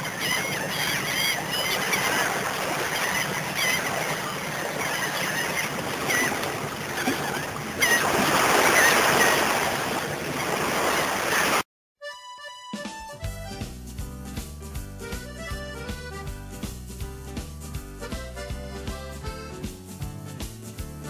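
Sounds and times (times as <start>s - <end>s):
birds calling: 0.0s - 11.6s
waves washing: 0.0s - 11.6s.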